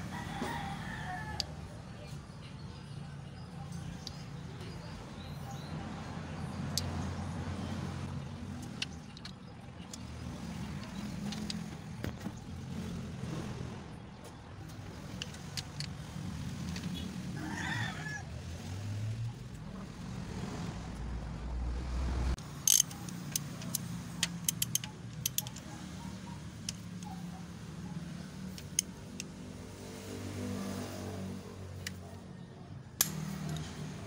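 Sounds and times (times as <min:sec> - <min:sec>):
ratchet wrench clicking: 0:22.4 - 0:27.1, 0:28.4 - 0:29.4.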